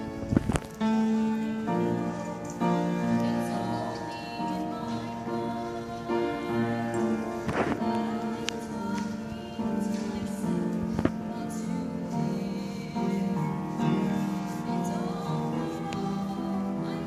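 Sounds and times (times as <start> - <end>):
piano accompaniment: 0.0 - 17.0
girl singing: 1.7 - 17.0.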